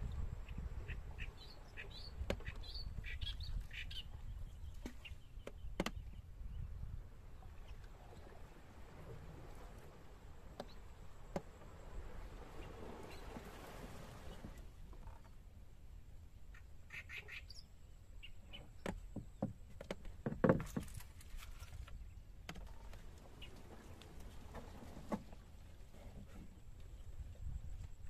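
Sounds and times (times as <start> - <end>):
small birds chirping: 0.0 - 6.8, 16.5 - 19.5
wooden pole knocking on boat: 2.2 - 2.6, 4.8 - 6.2, 18.8 - 21.0.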